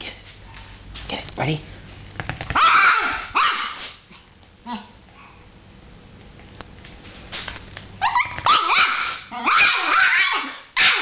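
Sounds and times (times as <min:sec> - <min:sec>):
small dog barking: 0:02.6 - 0:03.9, 0:08.0 - 0:11.0.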